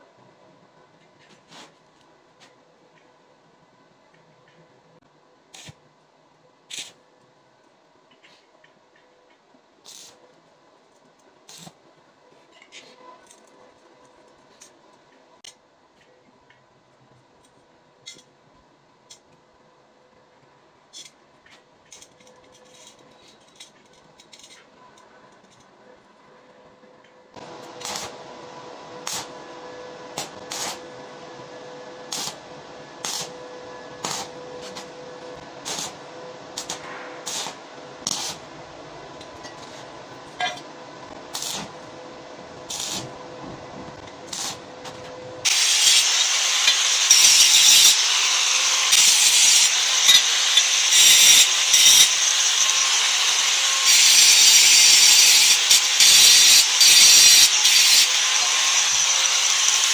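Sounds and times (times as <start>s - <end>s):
steady hum: 22.2s - 45.5s
welding crackles: 27.8s - 28.2s, 32.1s - 32.4s, 33.0s - 33.4s, 35.6s - 36.0s, 41.3s - 41.8s, 44.2s - 44.6s
angle grinder grinding steel: 45.4s - 59.9s.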